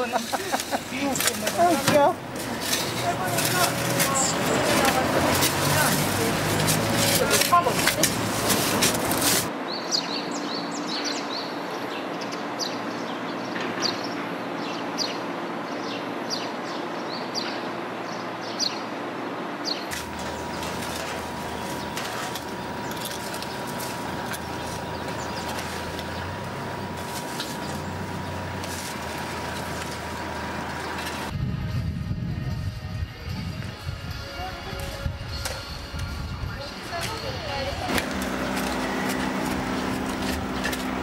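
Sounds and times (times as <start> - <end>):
steady background noise: 0.0 - 41.0
small birds chirping: 9.7 - 19.0, 19.6 - 31.3.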